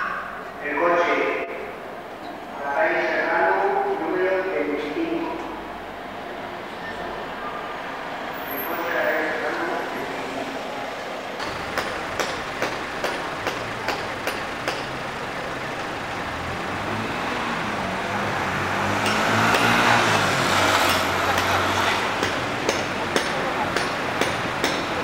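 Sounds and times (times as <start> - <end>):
fire engine motor running: 8.0 - 25.0.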